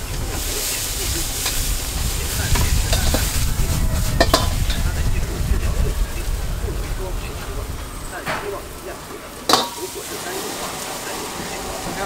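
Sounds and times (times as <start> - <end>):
food sizzling in wok: 0.0 - 12.0
ladle scraping wok: 0.0 - 12.0
steady low rumble: 0.0 - 12.0
ladle clinking against wok: 4.1 - 4.9, 9.3 - 12.0.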